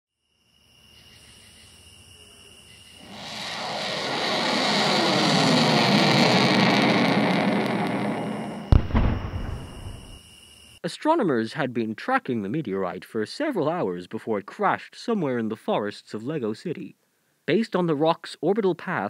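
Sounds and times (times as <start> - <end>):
faint crickets chirping: 0.2 - 3.9, 7.7 - 10.8
rushing roar: 3.0 - 10.0
deep impact boom: 6.0 - 10.2.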